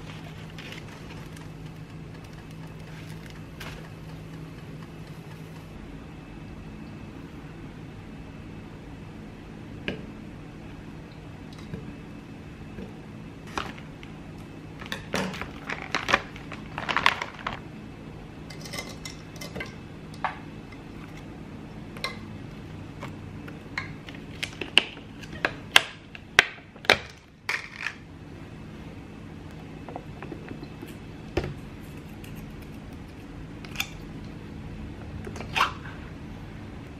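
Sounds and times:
plastic bag crackling: 0.0s - 4.3s, 13.5s - 14.2s, 14.8s - 17.7s
frozen berries clattering into cup: 14.8s - 17.6s.

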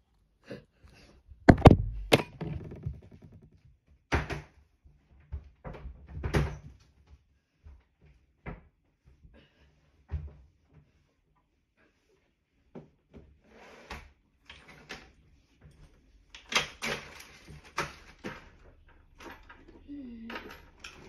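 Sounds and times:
phone knocking on table: 1.5s - 3.5s.

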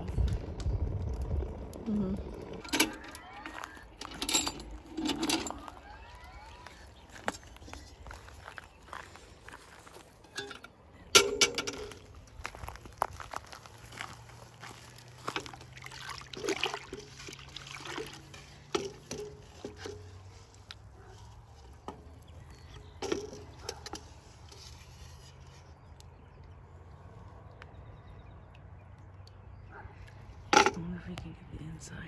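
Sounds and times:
water sloshing in pot: 14.9s - 20.7s.

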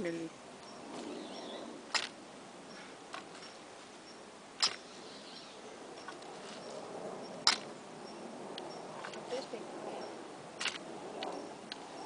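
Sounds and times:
post-hole digger striking soil: 1.9s - 2.2s, 4.6s - 4.9s, 7.4s - 7.7s, 10.6s - 10.8s.

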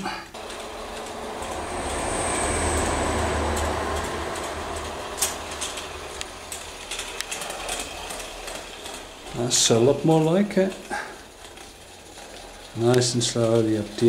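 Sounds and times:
thin high steam hiss: 0.4s - 11.3s
toy steam locomotive hiss and rattle: 0.4s - 14.0s
wheels clicking over rail joints: 0.4s - 14.0s.

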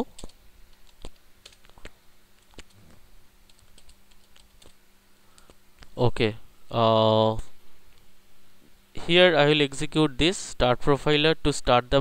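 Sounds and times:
computer keyboard keystrokes: 0.0s - 2.8s, 3.5s - 4.8s.

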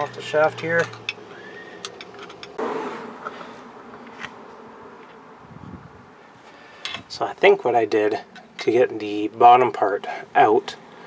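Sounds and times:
insect buzzing: 1.1s - 6.8s
metal parts clicking: 1.8s - 2.6s.

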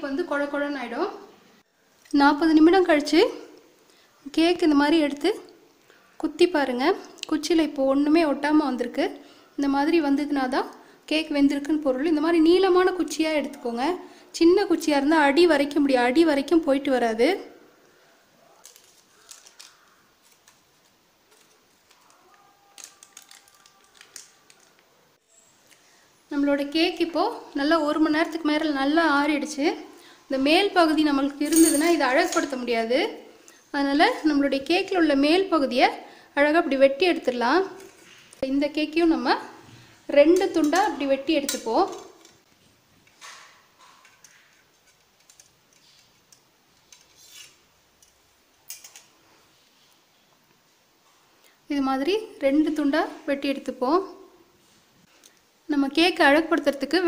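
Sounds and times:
aluminium foil crinkling: 18.5s - 25.0s, 43.2s - 49.1s.

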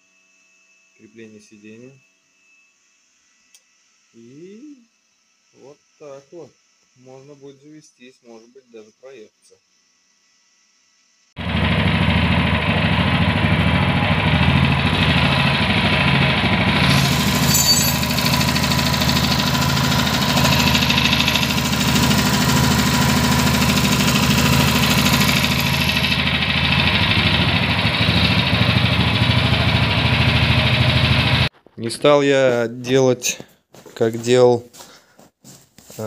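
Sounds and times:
tractor engine idling: 11.4s - 31.5s.

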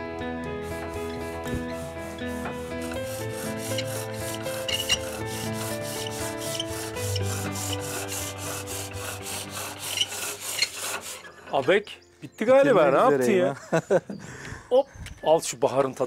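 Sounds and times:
soft background music: 0.0s - 16.0s
sandpaper rubbing wood: 0.6s - 11.3s.

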